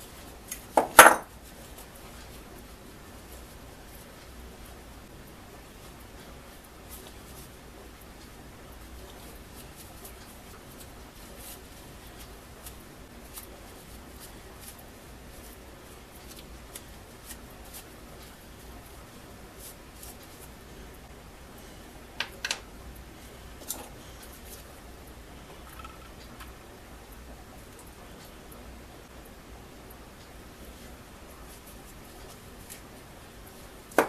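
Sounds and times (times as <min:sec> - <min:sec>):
faint rustling of a rag: 0:09.1 - 0:20.9.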